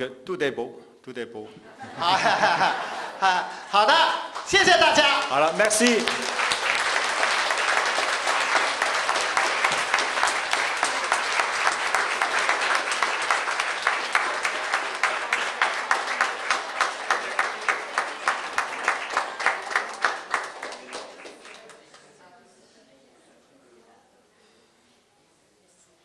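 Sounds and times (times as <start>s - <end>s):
audience applauding: 4.2s - 22.1s.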